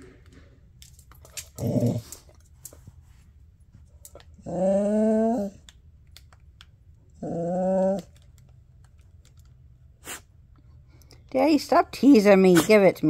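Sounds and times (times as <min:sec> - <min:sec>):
dog grumbling: 0:01.5 - 0:02.2, 0:04.4 - 0:05.6, 0:07.2 - 0:08.1
dog whining: 0:04.4 - 0:05.6, 0:07.2 - 0:08.2.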